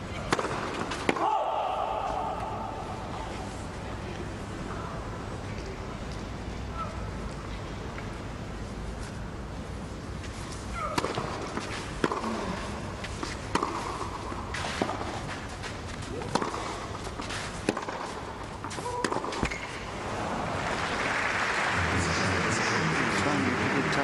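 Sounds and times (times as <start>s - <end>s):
racket hitting tennis ball: 0.2s - 2.6s, 10.7s - 19.9s
crowd applause: 20.0s - 24.0s.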